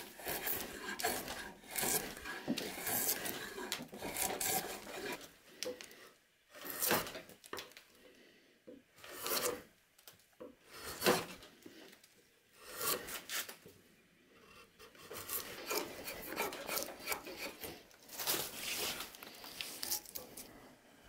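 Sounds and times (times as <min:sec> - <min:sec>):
drawknife shaving wood: 0:00.0 - 0:07.3, 0:09.0 - 0:09.7, 0:10.7 - 0:11.8, 0:12.6 - 0:13.6, 0:14.5 - 0:20.5.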